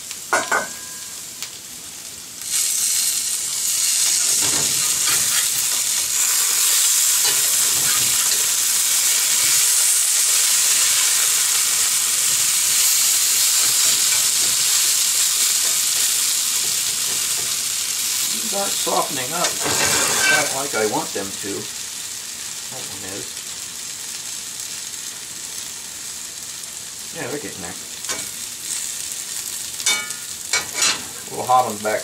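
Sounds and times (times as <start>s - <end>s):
potatoes sizzling in skillet: 0.0s - 32.0s
metal spatula scraping pan: 4.4s - 5.9s.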